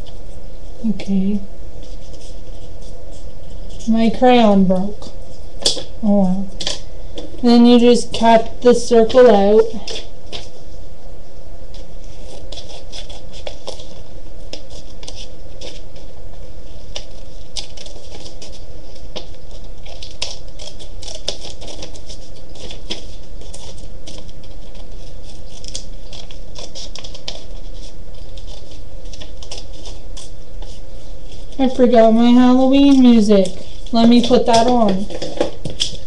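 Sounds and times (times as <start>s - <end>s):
low background hum: 0.0s - 36.0s
scissors snipping paper: 16.9s - 31.8s, 32.6s - 36.0s.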